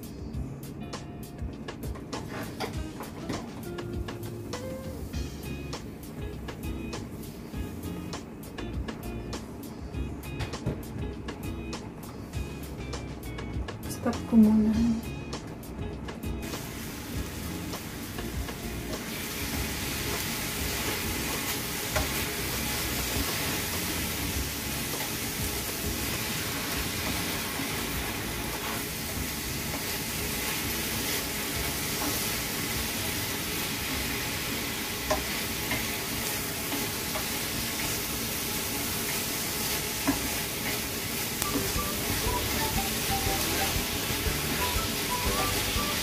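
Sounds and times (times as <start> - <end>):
meat and onions sizzling in a pan: 4.1 - 8.9, 12.3 - 12.9, 16.3 - 46.0
utensils clicking against pan: 35.0 - 38.0.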